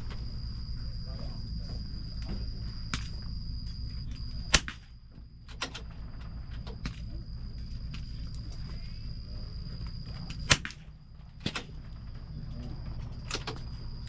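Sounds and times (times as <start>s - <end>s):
high insect drone: 0.0s - 14.0s
rifle shot: 4.5s - 5.0s, 10.4s - 11.7s.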